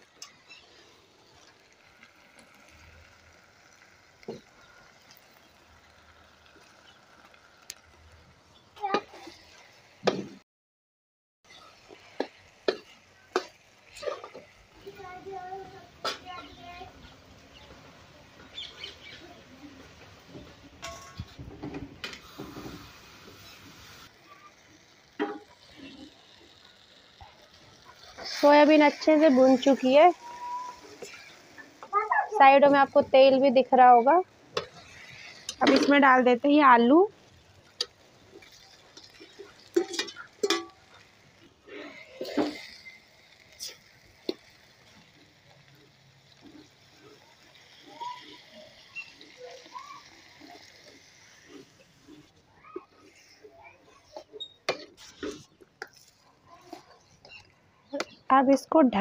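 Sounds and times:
food sizzling in oil: 0:00.0 - 0:10.4, 0:11.5 - 0:59.0
metal ladle scraping a pan: 0:20.8 - 0:24.1, 0:24.8 - 0:31.6, 0:34.5 - 0:36.3, 0:37.6 - 0:44.9, 0:46.3 - 0:57.5.

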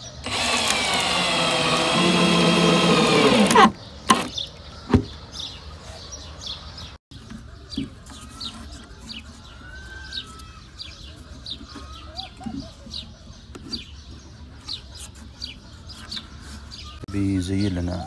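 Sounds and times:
birds chirping faintly: 0:00.0 - 0:18.0
power drill driving screw into wood: 0:00.2 - 0:04.3.

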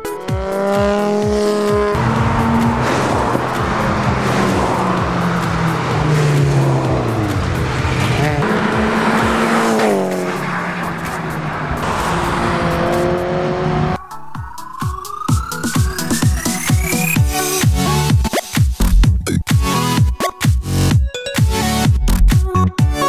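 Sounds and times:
race car engines passing: 0:00.3 - 0:14.0.

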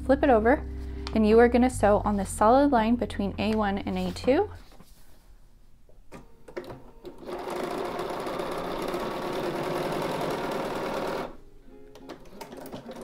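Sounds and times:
sewing machine stitching: 0:06.6 - 0:11.4, 0:12.0 - 0:13.0.

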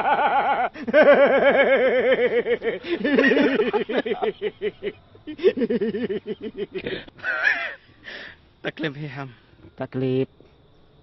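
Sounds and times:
man laughing loudly: 0:00.0 - 0:07.8.

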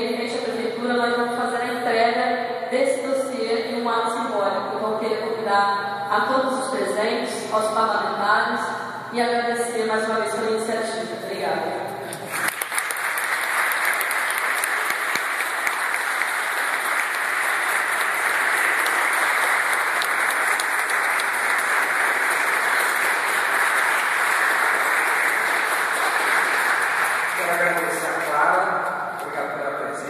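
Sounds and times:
audience applauding: 0:12.1 - 0:28.6.

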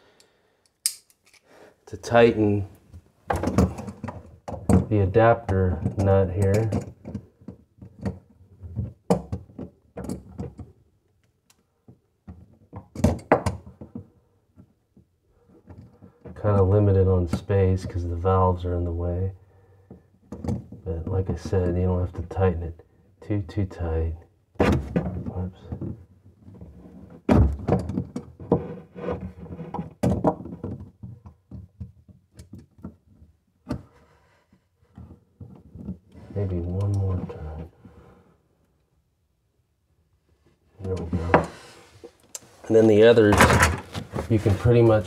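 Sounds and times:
pliers clacking on plastic pipe: 0:00.6 - 0:01.5, 0:05.8 - 0:07.2.

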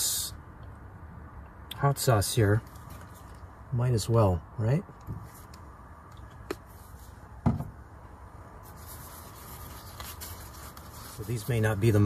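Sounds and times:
tortilla rustling: 0:02.6 - 0:03.6, 0:08.4 - 0:12.0
plastic bottle set down on wood: 0:07.4 - 0:07.7.

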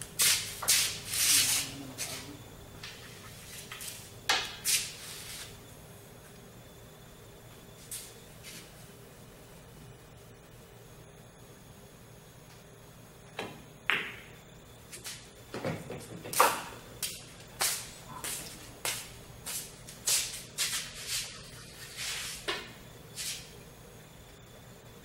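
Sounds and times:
pool balls clicking: 0:13.3 - 0:19.1.

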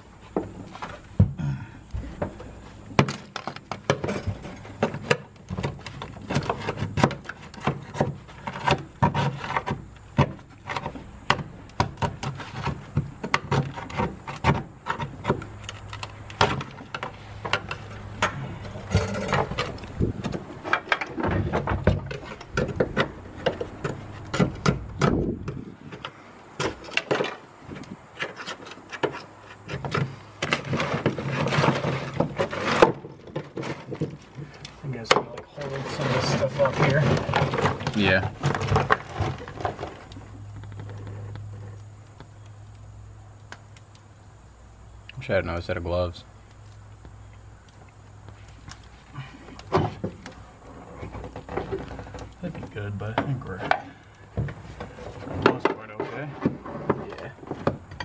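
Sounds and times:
brittle material cracking: 0:03.0 - 0:25.6
hand scraper scraping metal floor: 0:04.1 - 0:11.0, 0:28.2 - 0:33.0.

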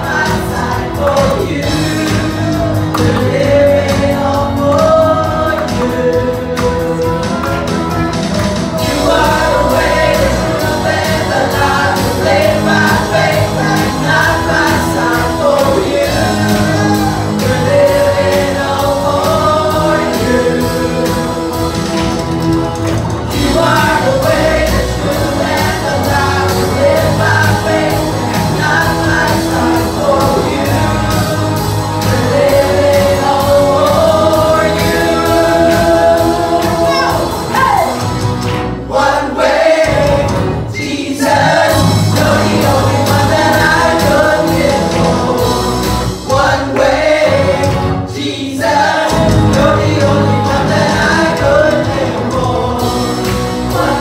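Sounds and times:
guitar: 0:00.0 - 0:54.0
steady drum beat: 0:00.0 - 0:54.0
woman singing into microphone: 0:32.6 - 0:38.0.

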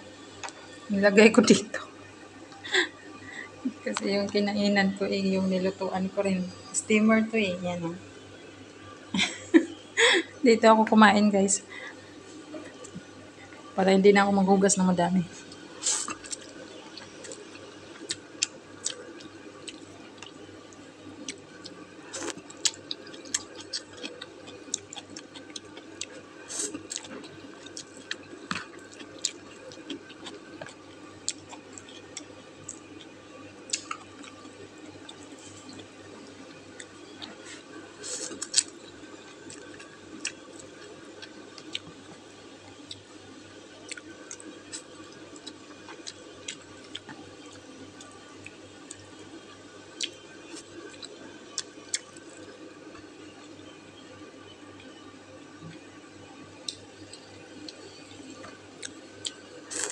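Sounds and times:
faint steady hum: 0:00.0 - 0:59.9
person chewing: 0:15.4 - 0:20.5, 0:21.2 - 0:42.0, 0:42.8 - 0:43.1, 0:43.8 - 0:49.0, 0:49.9 - 0:52.2, 0:56.6 - 0:59.9.

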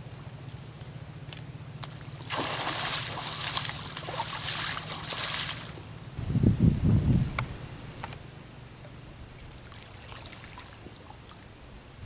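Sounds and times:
water splashing and sloshing: 0:01.8 - 0:06.2, 0:08.8 - 0:11.6.

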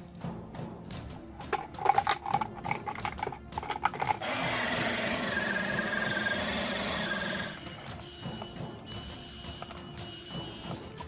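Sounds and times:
rotary grater grinding hiss: 0:04.2 - 0:07.6.

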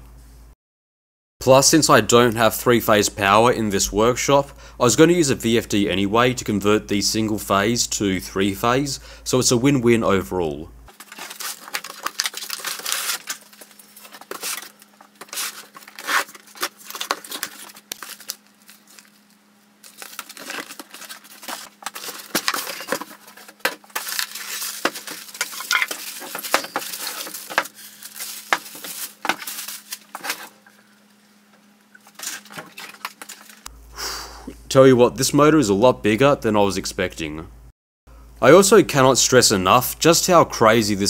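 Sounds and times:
packing tape tearing: 0:10.9 - 0:30.6
cardboard rustling and scraping: 0:10.9 - 0:30.7, 0:32.0 - 0:33.7.

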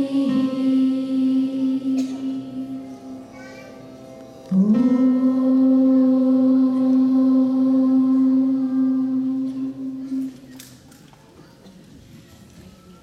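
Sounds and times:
slow quiet music: 0:00.0 - 0:11.3.

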